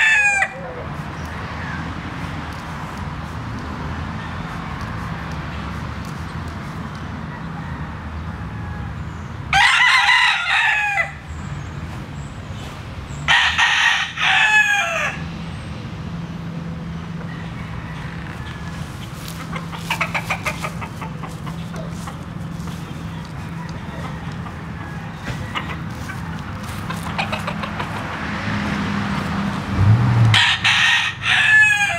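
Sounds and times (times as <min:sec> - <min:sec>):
rooster crowing: 0:00.0 - 0:00.8, 0:07.2 - 0:11.3, 0:13.3 - 0:15.3, 0:17.2 - 0:20.8, 0:21.7 - 0:28.0, 0:30.3 - 0:31.9
chicken clucking: 0:17.2 - 0:28.9.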